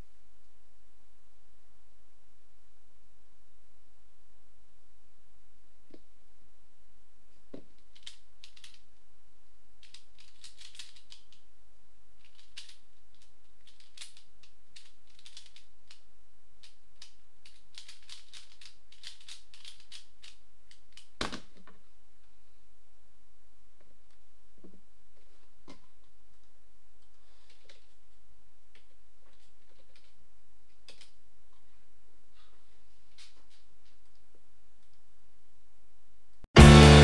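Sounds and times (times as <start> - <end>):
plastic puzzle clicking: 7.7 - 8.9, 9.8 - 11.4, 12.2 - 21.6, 28.8 - 31.2.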